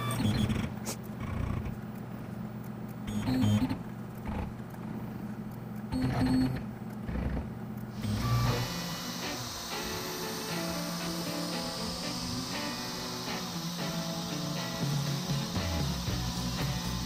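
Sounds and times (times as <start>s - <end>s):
machinery whirring bursts: 0.0s - 1.8s, 3.0s - 5.2s, 5.8s - 17.0s
cnc mill low hum: 0.0s - 17.0s
air hissing: 7.9s - 17.0s.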